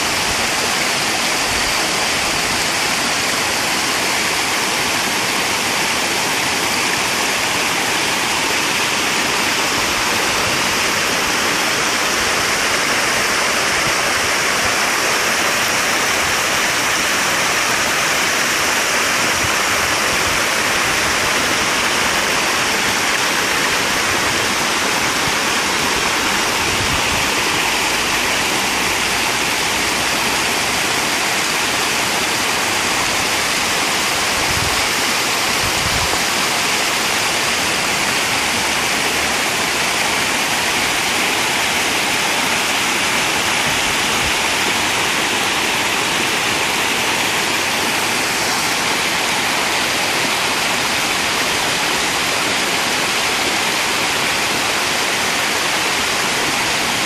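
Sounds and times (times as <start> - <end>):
stream rushing over boulders: 0.0 - 57.0.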